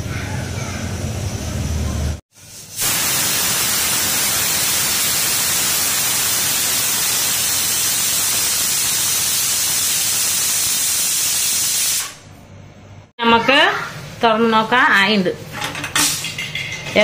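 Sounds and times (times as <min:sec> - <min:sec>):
pressure cooker whistle hissing steam: 0:02.6 - 0:12.2.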